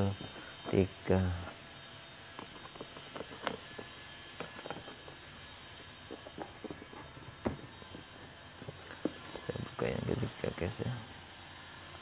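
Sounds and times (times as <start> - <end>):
cardboard box being handled: 6.0 - 9.8.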